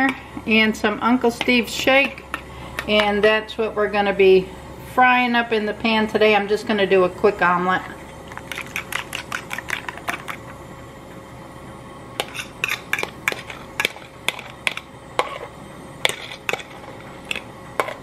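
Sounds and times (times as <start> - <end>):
fork scraping bowl: 8.4 - 10.4, 12.2 - 15.5.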